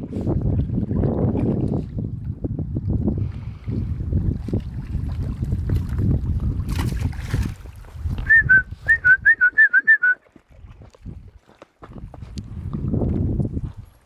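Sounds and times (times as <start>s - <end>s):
wind rumbling on microphone: 0.0s - 9.6s, 10.4s - 14.0s
person whistling short notes: 8.2s - 10.3s.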